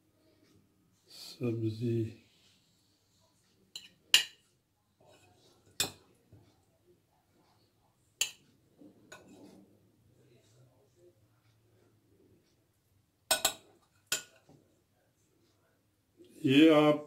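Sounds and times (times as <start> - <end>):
soft handling noise: 2.3 - 12.6
utensil clinking on ceramic plate: 13.3 - 14.4.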